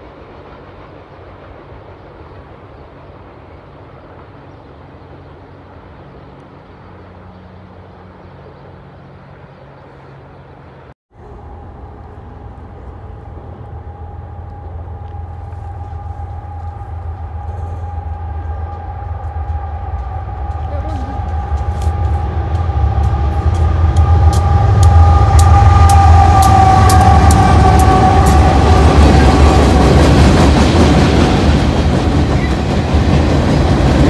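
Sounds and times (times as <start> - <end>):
train rumbling: 0.0 - 34.0
steady high tone: 11.2 - 31.0.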